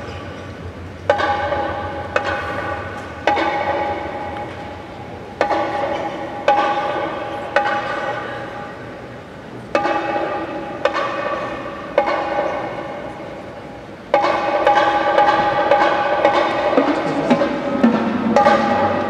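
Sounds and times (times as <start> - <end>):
marching band playing chords: 14.2 - 19.0.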